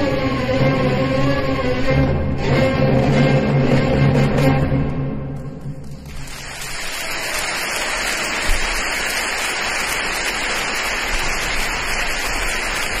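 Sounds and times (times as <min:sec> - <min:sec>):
music: 0:00.0 - 0:07.0
audience applauding: 0:05.8 - 0:13.0.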